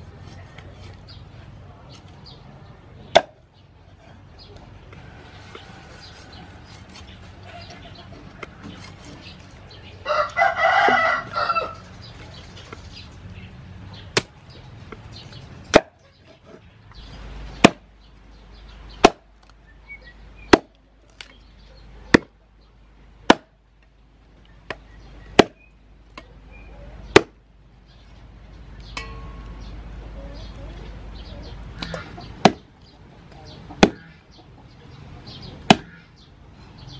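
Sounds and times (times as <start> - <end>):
cleaver chopping on wooden board: 3.1 - 3.4, 15.7 - 16.0, 19.0 - 19.3, 20.5 - 20.7, 22.1 - 22.3, 23.3 - 23.5, 25.4 - 25.6, 27.1 - 27.4, 31.8 - 32.7, 33.8 - 34.1, 35.7 - 36.0
rooster crowing: 10.0 - 11.9.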